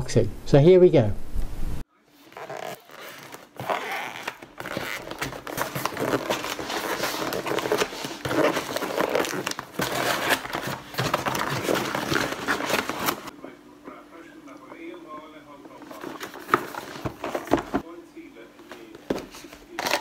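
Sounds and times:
cardboard box flaps rustling: 2.8 - 13.3, 15.9 - 17.8.

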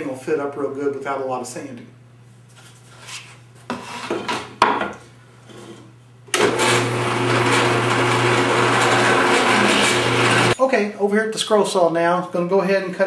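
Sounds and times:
drill press motor humming: 6.3 - 10.6.

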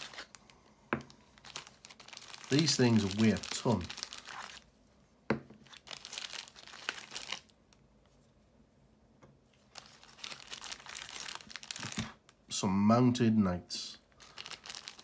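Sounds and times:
plastic bag crinkling: 0.0 - 4.6, 5.6 - 7.6, 9.7 - 12.2, 14.1 - 15.0.

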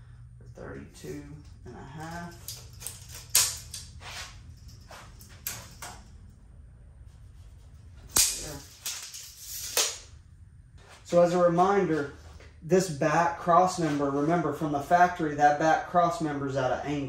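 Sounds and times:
tape measure clicks and snaps: 2.4 - 4.0, 8.1 - 10.1
tape measure blade retracting: 8.1 - 10.0.

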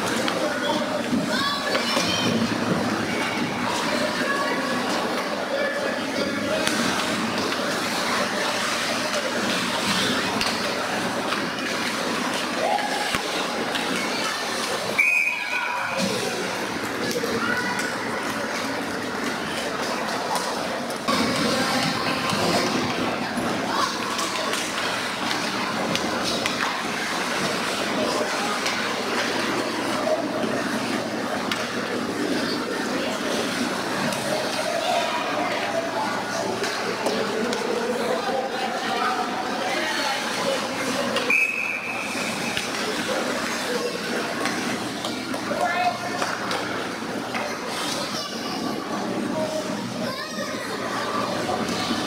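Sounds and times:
hockey sticks and puck clacking: 6.6 - 15.3, 23.4 - 31.8, 41.1 - 48.2.

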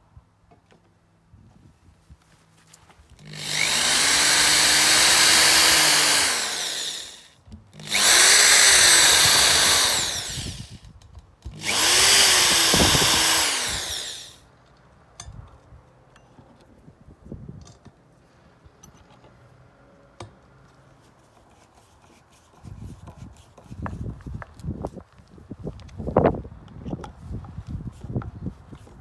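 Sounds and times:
power drill whining: 3.2 - 10.9, 11.5 - 14.4.

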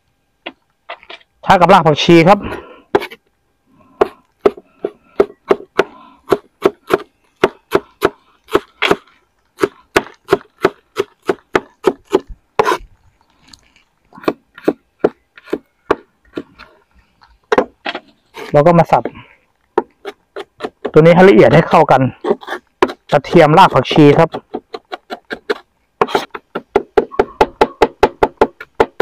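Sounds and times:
knife chopping on wooden board: 4.0 - 9.0, 9.6 - 12.8, 14.2 - 16.5, 22.2 - 29.0.

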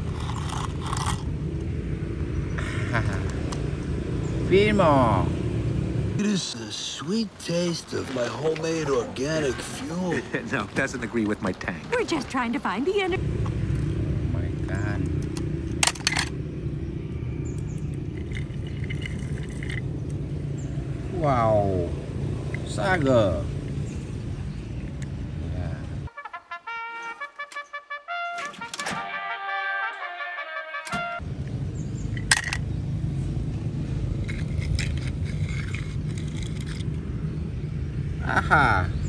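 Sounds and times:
low outdoor rumble: 0.0 - 26.1, 31.2 - 39.0
toy car scraping across rock: 34.2 - 37.0.

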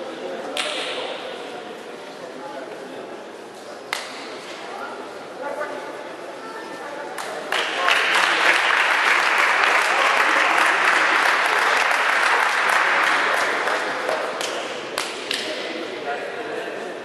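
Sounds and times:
separate claps: 0.6 - 1.1, 3.9 - 4.3, 7.2 - 15.6
audience applauding: 7.3 - 15.4.

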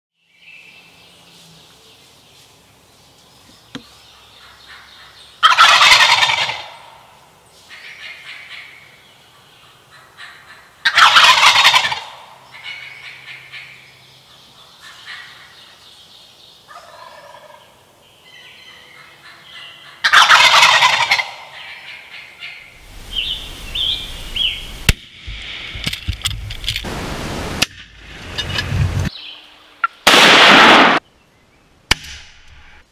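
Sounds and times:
turkeys gobbling: 4.4 - 7.0, 9.9 - 13.8, 16.7 - 17.7, 19.0 - 22.7
rushing noise with high calls: 20.1 - 25.9.

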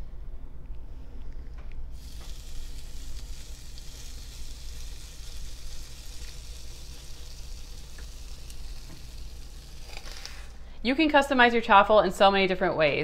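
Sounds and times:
batter sizzling on hot plate: 1.9 - 10.6.

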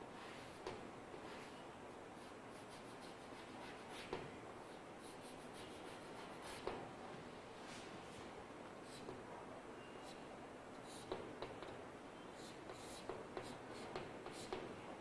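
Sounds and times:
chalk scratching on blackboard: 2.2 - 6.7, 12.4 - 14.6
chalk tapping on board: 12.7 - 14.7.

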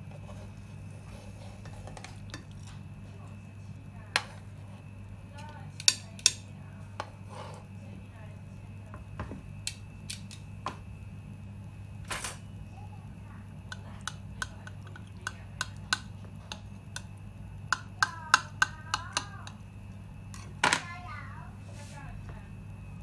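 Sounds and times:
steady low hum: 0.0 - 23.0
utensils clicking on ceramic plate: 5.8 - 6.4, 13.7 - 17.1, 17.7 - 19.6.

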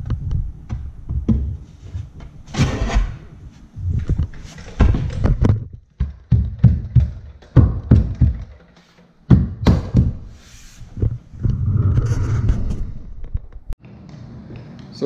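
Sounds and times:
knocks on wooden stair tread: 4.8 - 8.6.

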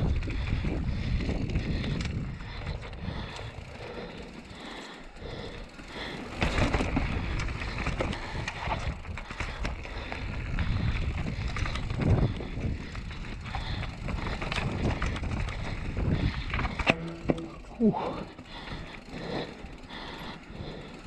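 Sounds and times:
bike tyres crunching over dirt: 0.0 - 21.0
bike knocks and rattles: 5.9 - 19.6.

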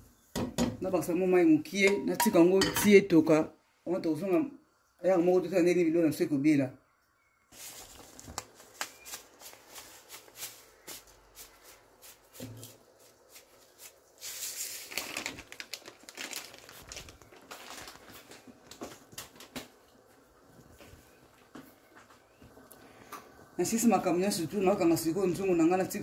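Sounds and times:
plastic packet crinkling: 7.5 - 20.1.

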